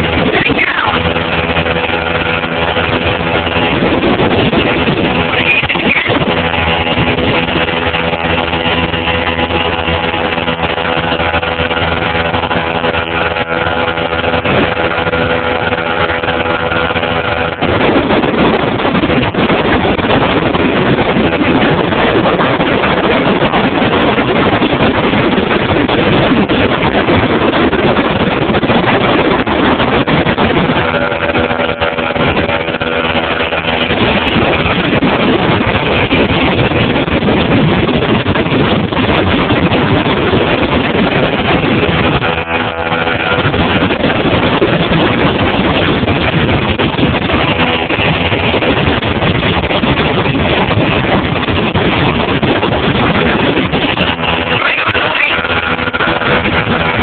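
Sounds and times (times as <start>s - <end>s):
motorboat engine running: 0.0s - 57.0s
rushing noise: 0.0s - 57.0s.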